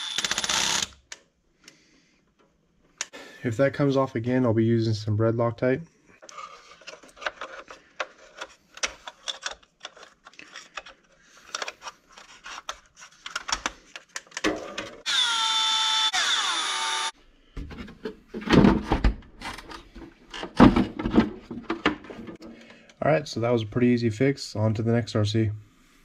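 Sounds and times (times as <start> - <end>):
cordless power screwdriver whirring: 0.0 - 0.9, 15.1 - 17.1
plastic parts clicking: 6.2 - 14.9.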